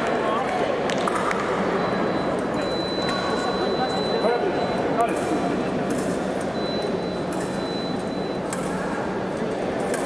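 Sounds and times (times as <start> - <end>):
large hall background noise: 0.0 - 10.0.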